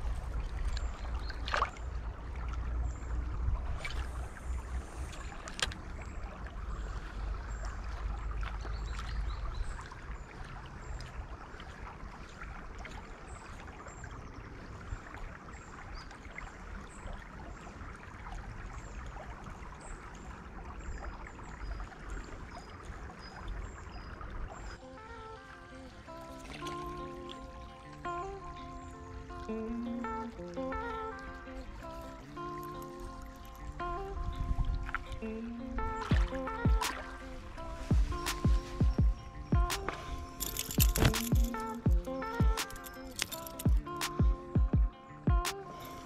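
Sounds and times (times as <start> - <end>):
river water trickling: 0.0 - 46.0
music: 24.8 - 46.0
sharp clicks: 39.7 - 44.4.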